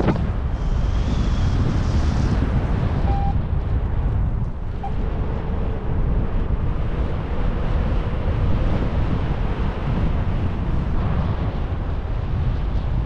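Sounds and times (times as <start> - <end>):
airflow buffeting microphone: 0.0 - 13.0
faint beeps: 3.1 - 3.4.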